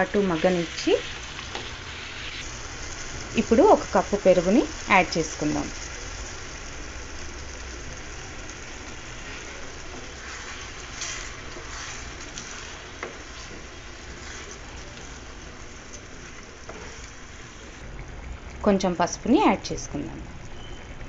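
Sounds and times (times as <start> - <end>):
vegetables sizzling in a frying pan: 0.0 - 21.0
spoon stirring: 9.2 - 17.4.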